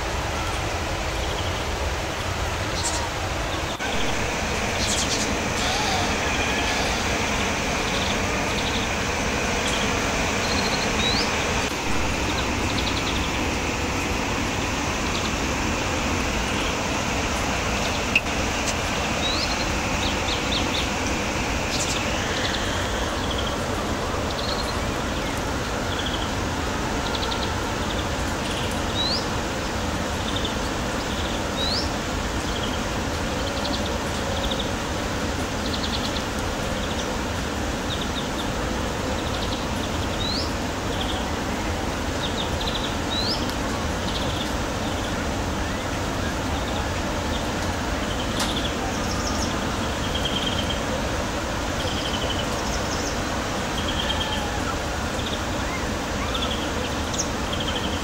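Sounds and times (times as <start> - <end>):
steady background noise: 0.0 - 58.0
high rising chirps: 3.8 - 23.6.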